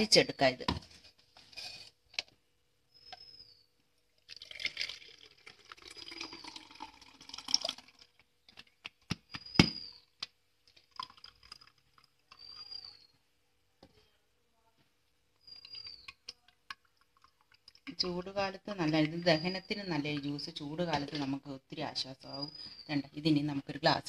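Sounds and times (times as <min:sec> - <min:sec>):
liquid pouring through strainer: 0:04.2 - 0:08.2, 0:10.6 - 0:13.0.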